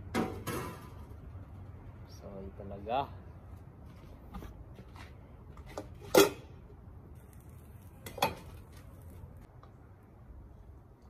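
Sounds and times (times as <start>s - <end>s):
metal pot and utensils clanking: 5.9s - 6.5s.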